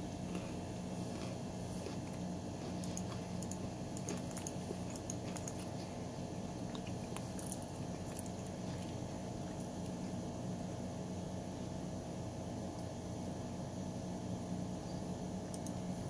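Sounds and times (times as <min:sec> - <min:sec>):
computer mouse clicking: 0:15.5 - 0:15.8.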